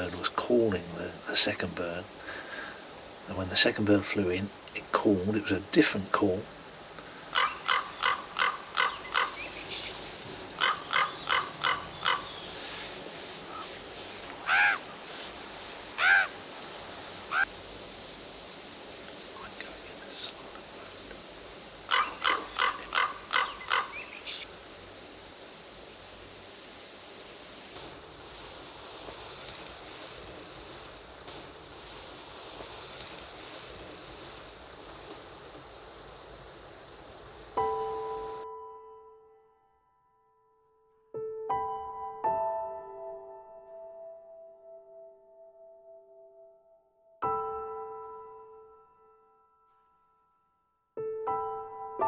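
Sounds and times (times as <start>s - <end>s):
outdoor background hiss: 0.0s - 44.2s
raven croaks: 7.3s - 12.6s, 14.3s - 15.0s, 15.9s - 16.5s, 17.2s - 17.5s, 21.9s - 24.5s
ravens calling: 7.3s - 19.7s, 21.9s - 24.5s.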